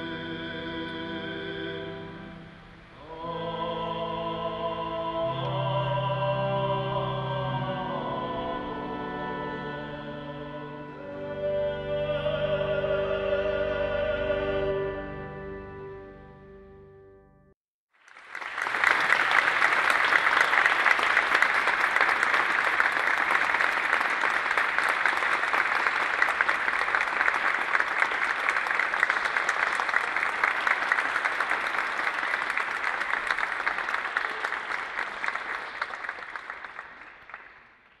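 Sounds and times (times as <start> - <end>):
audience applause: 18.0 - 38.0.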